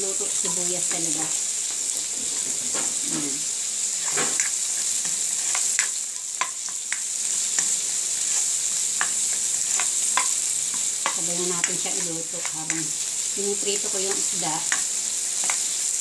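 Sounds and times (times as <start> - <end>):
fish frying in a pan: 0.0 - 16.0
onions sizzling in oil: 0.0 - 16.0
spatula scraping a pan: 3.8 - 13.0, 14.1 - 15.9.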